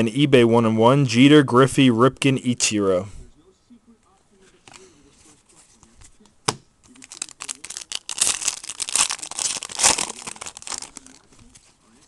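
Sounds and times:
foil pack tearing and crinkling: 0:07.0 - 0:11.3.

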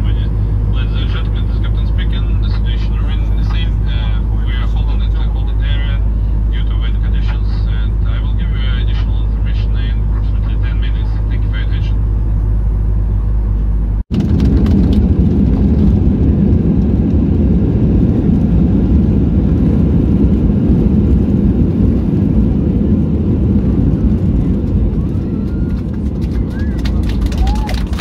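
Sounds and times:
airliner roaring on runway: 0:00.0 - 0:28.0.

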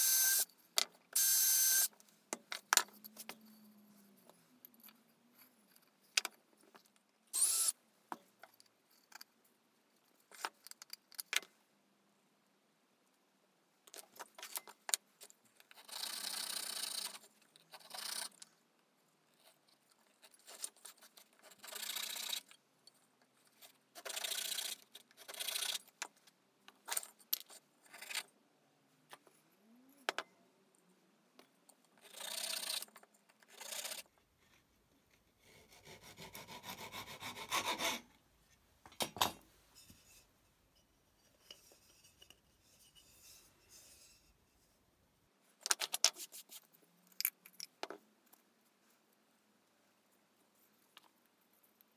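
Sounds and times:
hand saw cutting wood: 0:35.4 - 0:38.1
knocks and clicks of wood and tools: 0:38.8 - 0:39.5.

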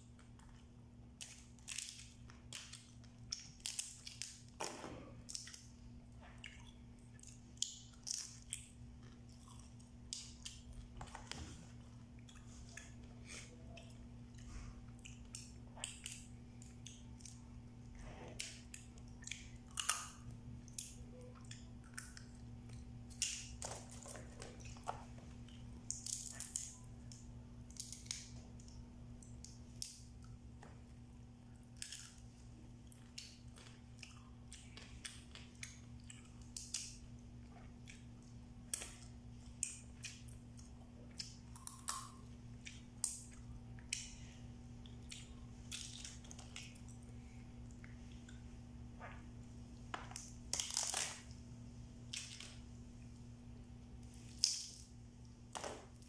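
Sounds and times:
chewing: 0:05.2 - 0:30.4, 0:31.6 - 0:49.2
crab shells cracking: 0:50.1 - 0:51.2.

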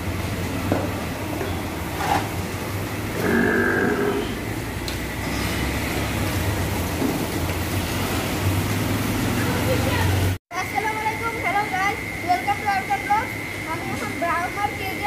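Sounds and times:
cow mooing: 0:03.1 - 0:04.5.

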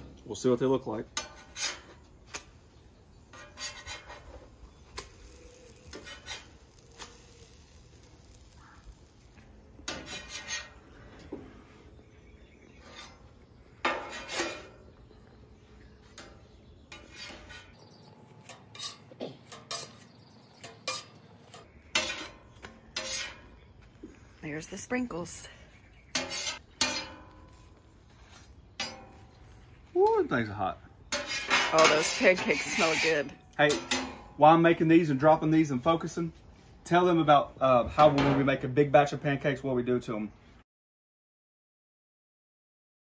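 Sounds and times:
metal spatula scraping griddle: 0:01.2 - 0:02.5, 0:03.1 - 0:11.2, 0:12.6 - 0:14.9, 0:16.0 - 0:23.6, 0:26.1 - 0:29.5, 0:31.1 - 0:34.4
spatula clinking on wire rack: 0:18.5 - 0:22.4.

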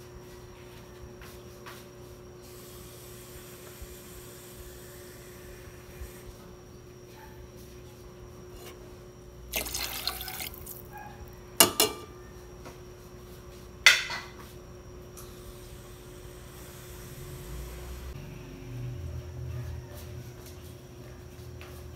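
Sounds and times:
water pouring into pot: 0:09.5 - 0:10.9.

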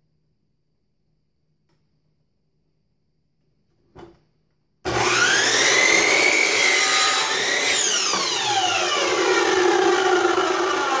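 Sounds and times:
miter saw cutting wood: 0:04.9 - 0:11.0.

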